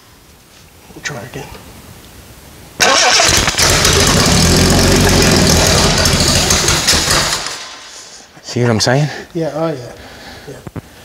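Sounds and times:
car engine starting and dying: 0:02.8 - 0:07.9.

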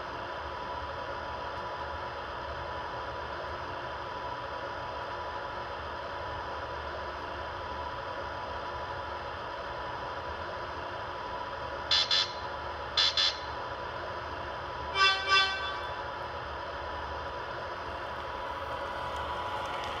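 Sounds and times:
train idling hum and hiss: 0:00.0 - 0:20.0
low horn toots: 0:15.0 - 0:16.1.

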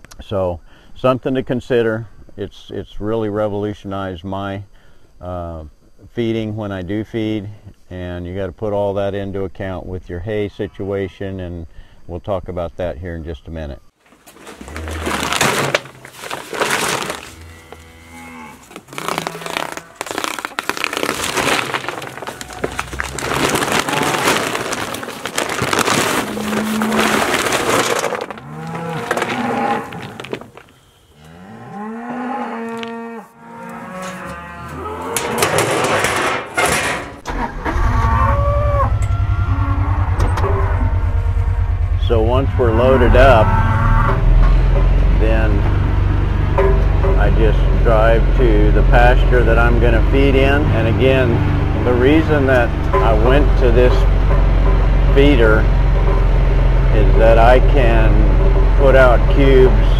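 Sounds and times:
feed cubes rattling into feeder: 0:14.2 - 0:17.4, 0:18.8 - 0:30.7
cattle mooing: 0:14.6 - 0:15.6, 0:16.2 - 0:30.4, 0:31.2 - 0:35.7, 0:37.7 - 0:47.0
utility vehicle engine running: 0:37.3 - 0:59.9.

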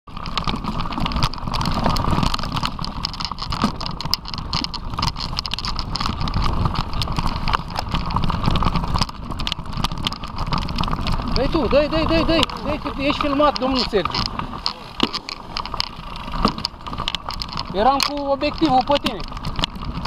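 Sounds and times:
bike rattling on dirt trail: 0:00.1 - 0:20.0.

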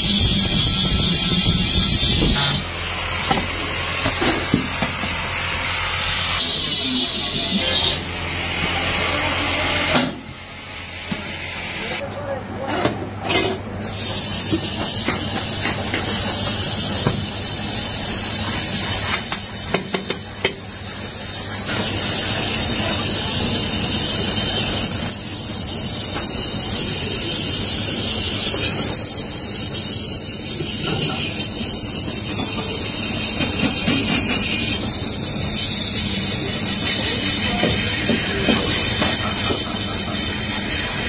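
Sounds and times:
metal cutting hiss on lathe: 0:00.0 - 0:08.2, 0:13.8 - 0:41.0.

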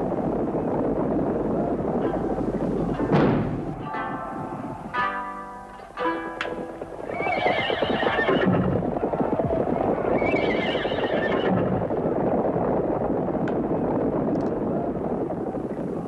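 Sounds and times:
hooves clattering: 0:00.0 - 0:16.0
horses neighing: 0:06.5 - 0:12.0.

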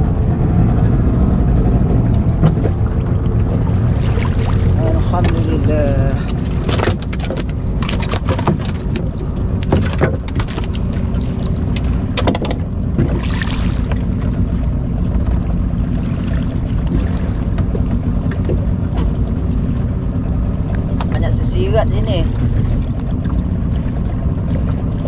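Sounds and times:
boat motor running: 0:00.0 - 0:25.0
knocks and clatter: 0:02.2 - 0:02.9, 0:06.3 - 0:13.2.

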